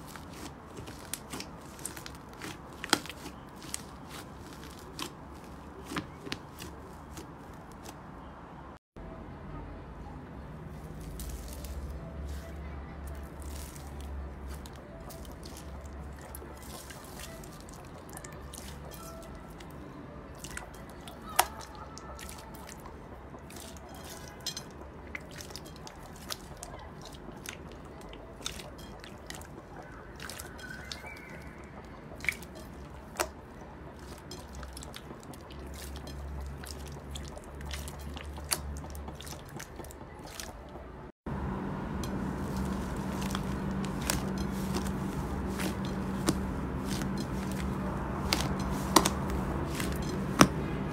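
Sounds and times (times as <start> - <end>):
low hum: 41.3 - 50.9
wet slime squelching pops: 42.4 - 50.6.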